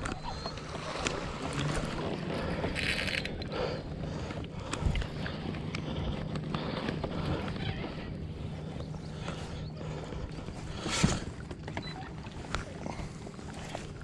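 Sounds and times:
clicks and knocks of fishing gear: 0:00.0 - 0:03.6
steady low hum: 0:00.0 - 0:14.0.

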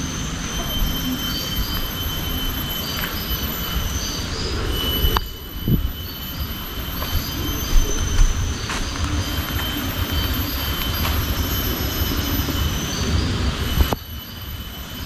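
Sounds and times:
high-pitched insect drone: 0:00.0 - 0:15.0
wind on microphone: 0:00.0 - 0:15.0
footsteps walking: 0:06.9 - 0:12.6.

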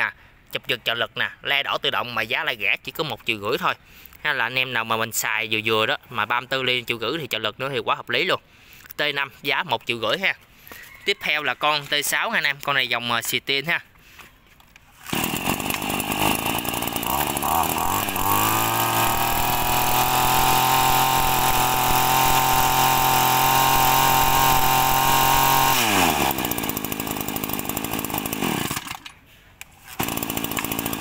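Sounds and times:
brush cutter engine revving: 0:14.7 - 0:31.0.

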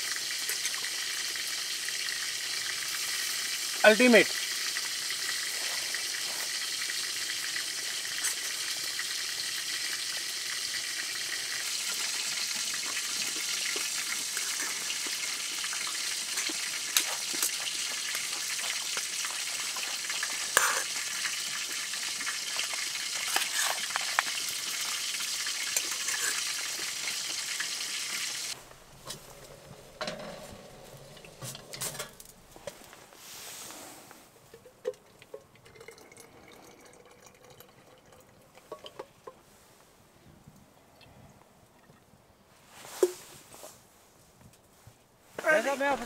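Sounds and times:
steady sizzling hiss: 0:00.0 - 0:40.2, 0:42.4 - 0:46.0
spoon scraping metal pan: 0:20.5 - 0:20.9, 0:23.2 - 0:24.3, 0:25.7 - 0:26.6.

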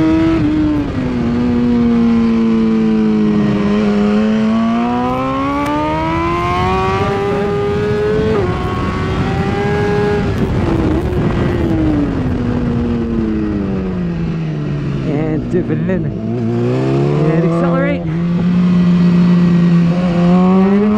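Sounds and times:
motorcycle engine revving: 0:00.0 - 0:20.9
rushing wind noise: 0:00.0 - 0:20.9.

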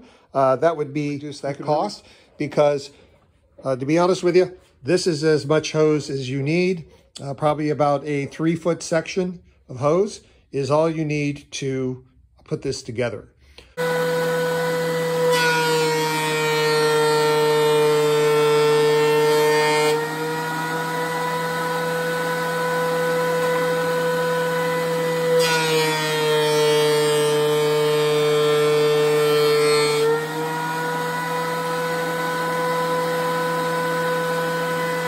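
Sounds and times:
planer cutting wood: 0:13.8 - 0:35.0
planer motor whine: 0:13.8 - 0:35.0.

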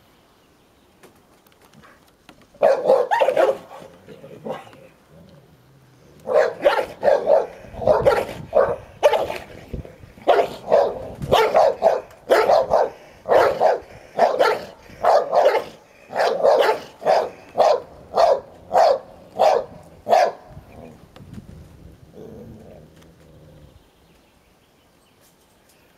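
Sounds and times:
dog barking: 0:02.6 - 0:03.9, 0:06.2 - 0:09.4, 0:10.2 - 0:20.4.

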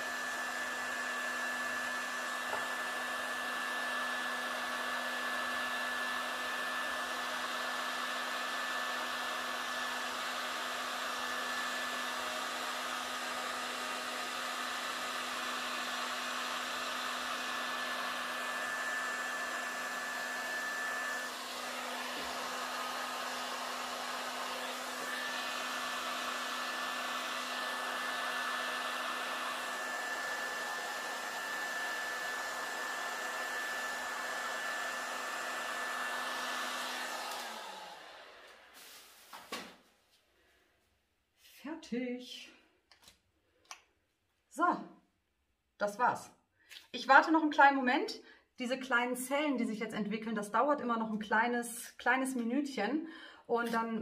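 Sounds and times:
heat gun blowing: 0:00.0 - 0:39.8.

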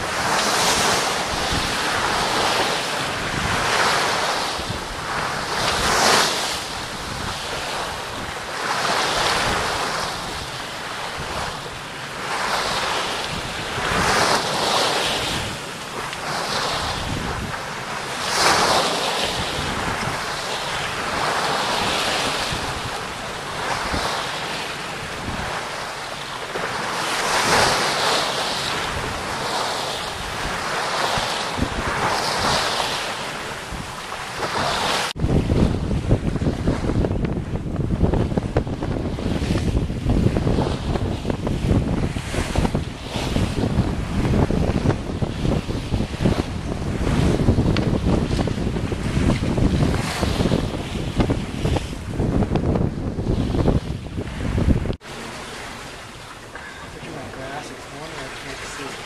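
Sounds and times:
wind buffeting microphone: 0:00.0 - 0:59.0
bow wave rushing and spraying: 0:55.0 - 0:59.0.

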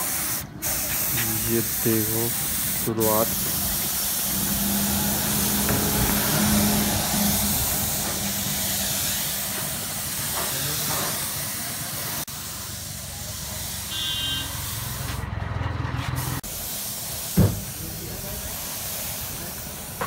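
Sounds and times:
paint spray gun hissing: 0:00.0 - 0:15.1, 0:16.4 - 0:20.0
short thump: 0:17.4 - 0:17.7.

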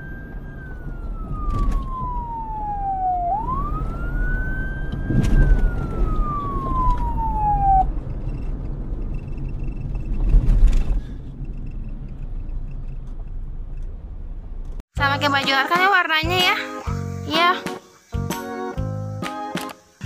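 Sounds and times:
fire truck siren wailing: 0:00.0 - 0:08.0
steady low rumble: 0:00.2 - 0:14.8.

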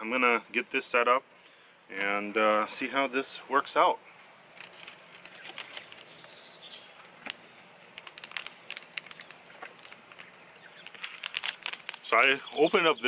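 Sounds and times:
plastic pouch crinkling: 0:04.5 - 0:06.4, 0:07.0 - 0:12.4.

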